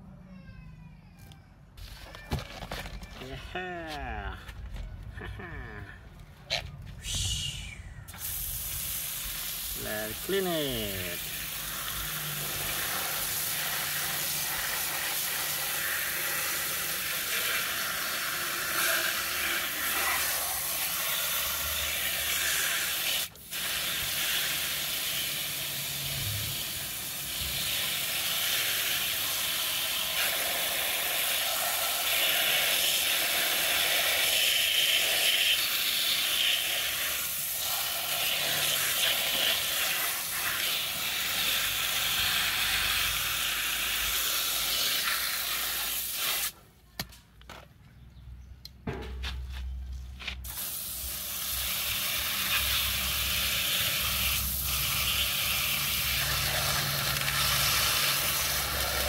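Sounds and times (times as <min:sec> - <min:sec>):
hose water spraying and splashing: 0:08.0 - 0:46.6, 0:50.4 - 0:59.0.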